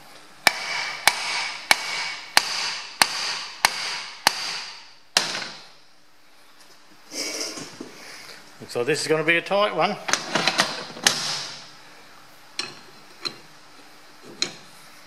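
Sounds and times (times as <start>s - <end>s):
hammer striking steel: 0.4s - 5.6s.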